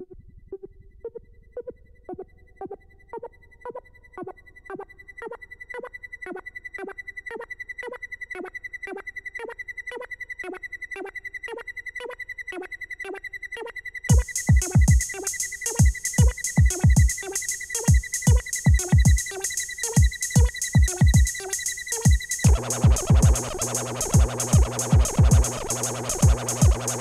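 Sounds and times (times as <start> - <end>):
synthesizer pulsing notes: 14.1 - 27.0
steady high synth tone: 22.4 - 27.0.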